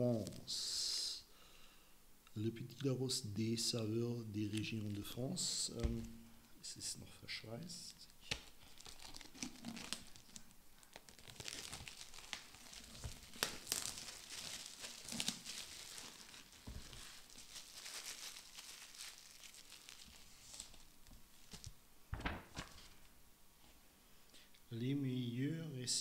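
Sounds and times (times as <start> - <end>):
plastic shrink-wrap crinkling: 7.8 - 23.1.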